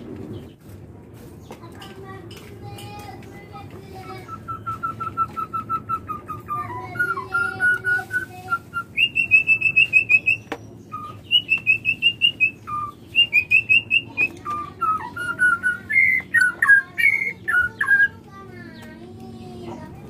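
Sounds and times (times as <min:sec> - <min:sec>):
bird whistling calls: 0:04.0 - 0:18.2.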